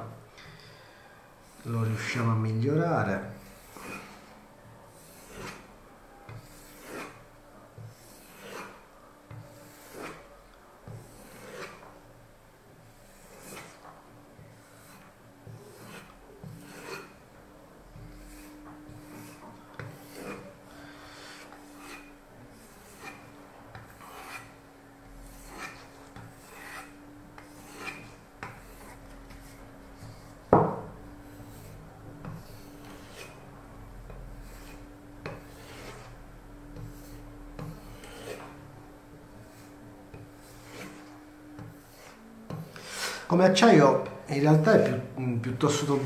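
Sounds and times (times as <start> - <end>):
knife blade stropping: 15.7 - 17.1, 20.0 - 20.4, 25.4 - 26.9, 27.6 - 28.0
knock: 30.5 - 31.0.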